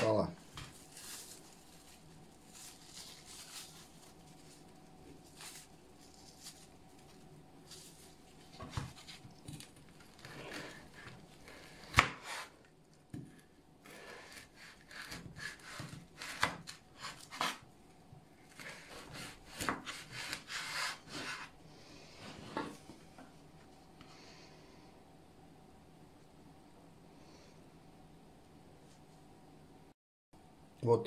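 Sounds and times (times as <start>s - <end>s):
plastic cling film peeling: 0.5s - 10.2s
knife cutting frozen fish: 13.9s - 17.6s, 18.5s - 21.5s.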